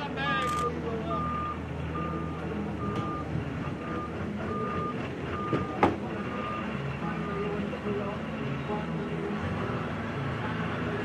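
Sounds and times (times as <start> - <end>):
reversing alarm beeping: 0.4 - 7.5.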